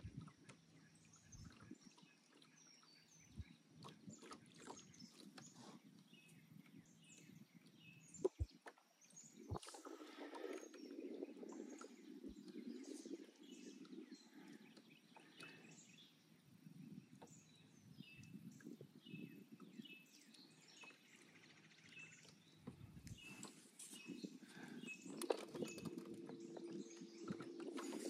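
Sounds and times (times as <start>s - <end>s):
bird chirps: 9.1s - 28.0s.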